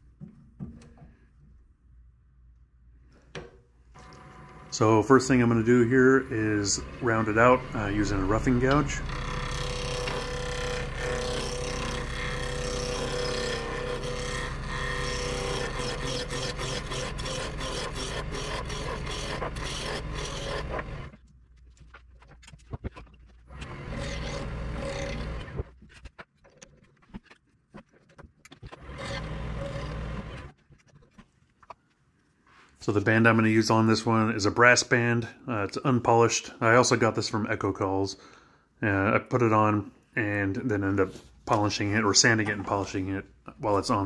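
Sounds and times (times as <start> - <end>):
lathe gouge scraping wood: 4.0 - 21.1, 23.5 - 25.7
lathe motor hum: 4.0 - 21.1.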